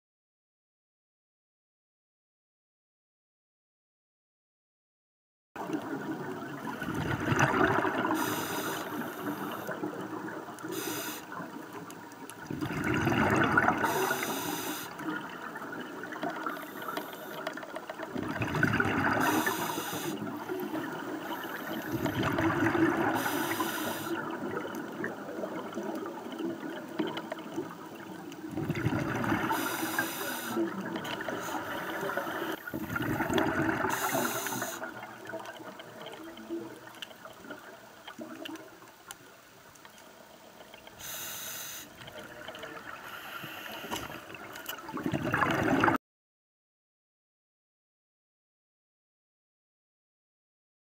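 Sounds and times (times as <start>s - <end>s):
exhaled air bubbling underwater: 5.6s - 46.0s
regulator short high hisses: 8.2s - 9.7s, 10.7s - 11.3s, 13.8s - 15.0s, 19.2s - 20.2s, 23.2s - 24.2s, 29.6s - 30.6s, 33.9s - 34.8s, 41.0s - 41.9s.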